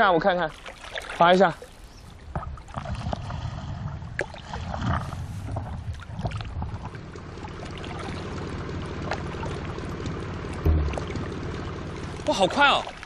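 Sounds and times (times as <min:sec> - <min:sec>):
paddle dipping and splashing: 0:00.3 - 0:13.0
water washing: 0:06.0 - 0:13.0.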